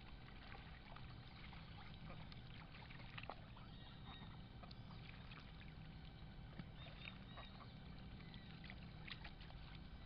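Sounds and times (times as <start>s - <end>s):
ducks splashing in water: 0.0s - 10.0s
low steady rumble: 0.0s - 10.0s
small water ticks: 0.0s - 10.0s.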